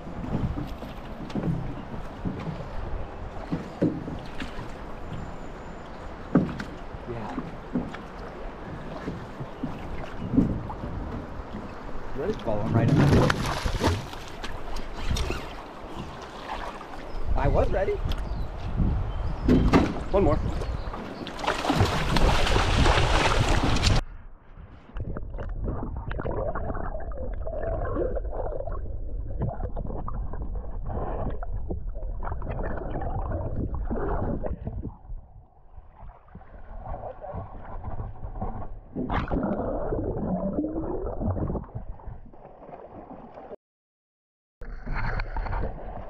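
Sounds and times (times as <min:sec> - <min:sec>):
fish thrashing and splashing: 0:12.8 - 0:15.6, 0:21.3 - 0:24.0
underwater gurgling and bubbles: 0:24.8 - 0:43.6, 0:44.6 - 0:46.0.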